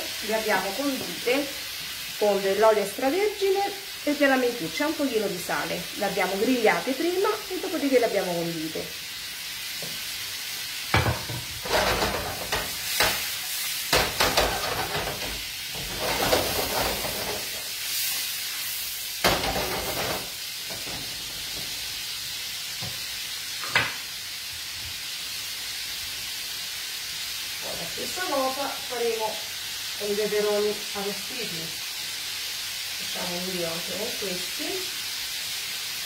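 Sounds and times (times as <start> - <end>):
prawns sizzling in a frying pan: 0.0 - 36.0
pan clattering on burner: 10.9 - 17.7, 19.2 - 21.7, 23.6 - 24.0.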